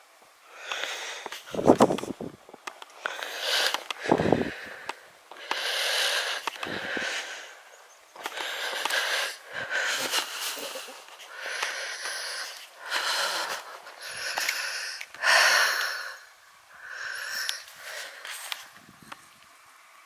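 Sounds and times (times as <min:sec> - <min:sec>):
person breathing hard: 0:00.4 - 0:02.2, 0:03.0 - 0:18.8.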